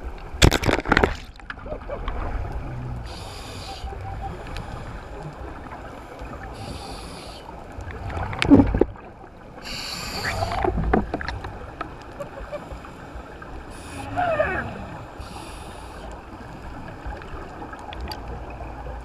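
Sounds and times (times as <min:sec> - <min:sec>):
regulator inhalation hiss: 0:03.1 - 0:03.9, 0:06.5 - 0:07.5, 0:09.6 - 0:10.6, 0:15.2 - 0:16.1
exhaled bubbles rushing: 0:07.8 - 0:09.3, 0:10.1 - 0:11.8, 0:13.8 - 0:15.2.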